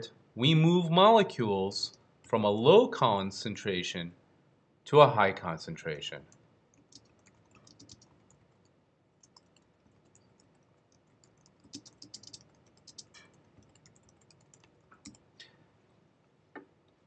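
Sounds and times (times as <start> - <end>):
typing on keyboard: 6.7 - 15.2.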